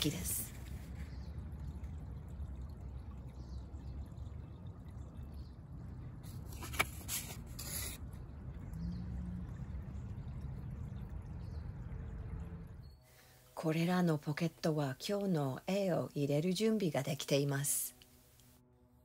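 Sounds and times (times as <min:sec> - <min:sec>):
low outdoor background rumble: 0:00.0 - 0:19.0
paper rustling: 0:06.5 - 0:08.0.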